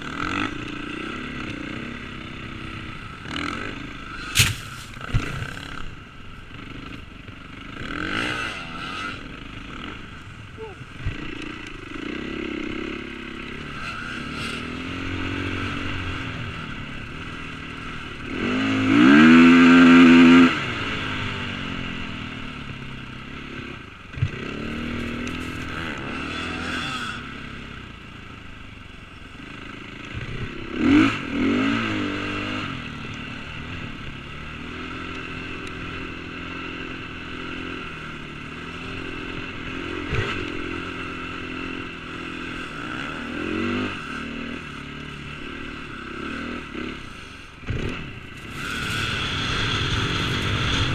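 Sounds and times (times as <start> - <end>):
dirt bike engine revving: 0.0 - 27.8, 29.4 - 50.9
sharp knock: 4.3 - 5.2.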